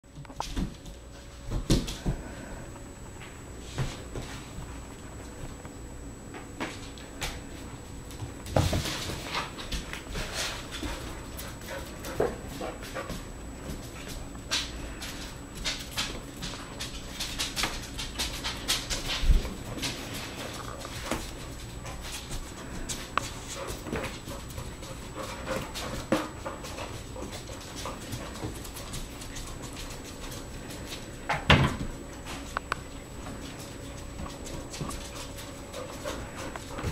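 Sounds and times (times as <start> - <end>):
puppies panting: 19.7 - 31.1, 33.2 - 36.9.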